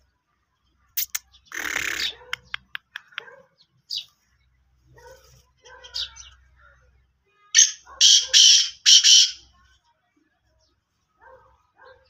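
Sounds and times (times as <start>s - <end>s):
bird calling with harsh notes: 1.0s - 3.2s, 7.6s - 9.6s
bird clicks: 1.0s - 3.3s.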